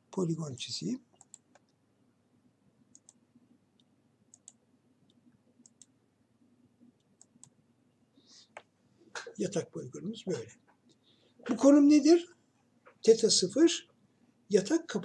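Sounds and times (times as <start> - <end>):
faint low room hum: 0.0 - 15.0
computer mouse clicks: 1.1 - 1.8, 2.9 - 3.2, 3.8 - 6.0, 7.0 - 7.6.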